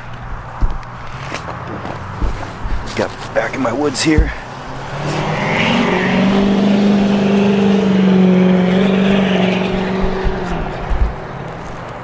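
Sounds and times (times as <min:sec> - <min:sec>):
vehicle driving past: 0:04.4 - 0:11.8.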